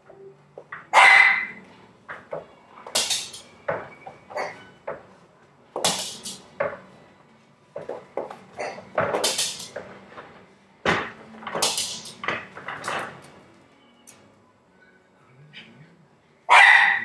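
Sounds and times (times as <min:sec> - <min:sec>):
chair knocking and rattling: 0:00.6 - 0:05.2, 0:05.8 - 0:06.9, 0:07.7 - 0:13.5.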